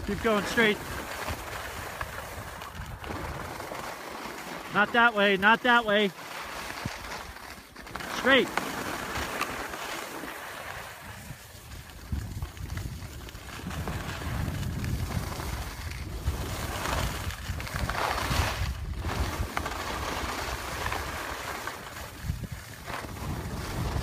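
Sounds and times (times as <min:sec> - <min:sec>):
wind buffeting microphone: 0:00.0 - 0:03.9, 0:10.3 - 0:24.0
skis sliding on snow: 0:00.0 - 0:24.0.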